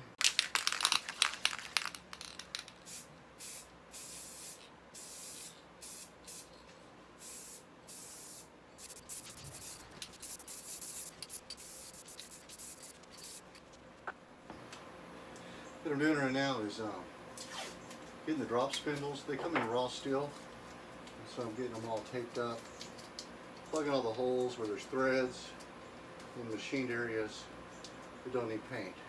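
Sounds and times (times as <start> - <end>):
spray can rattling: 0.2 - 6.6, 7.2 - 13.8
spray paint hissing bursts: 0.6 - 6.6, 7.2 - 13.6.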